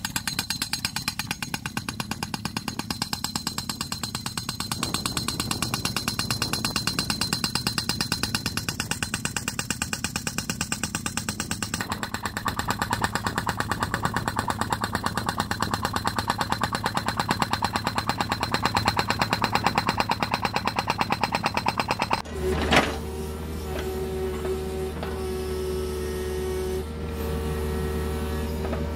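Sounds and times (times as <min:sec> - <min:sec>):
pneumatic tool hammering underground: 0:00.0 - 0:28.9.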